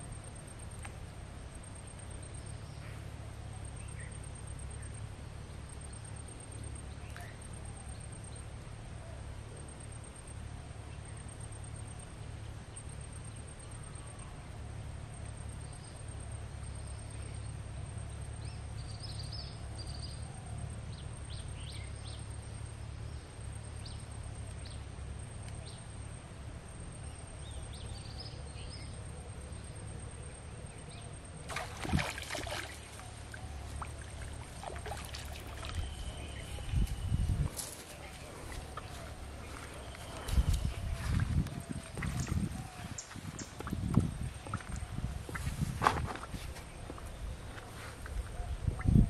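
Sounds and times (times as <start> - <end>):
faint high chirps: 32.0 - 45.0
steady low rumble: 32.8 - 49.0.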